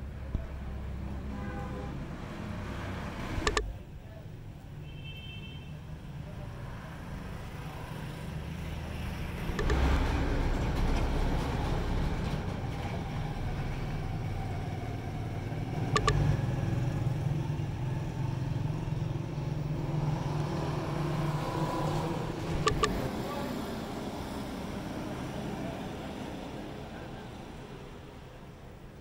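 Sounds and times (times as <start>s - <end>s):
vehicle engine humming: 0.0s - 4.2s, 7.2s - 28.9s
sharp clicks: 3.4s - 3.7s, 9.5s - 10.1s, 15.9s - 16.4s, 22.5s - 23.1s.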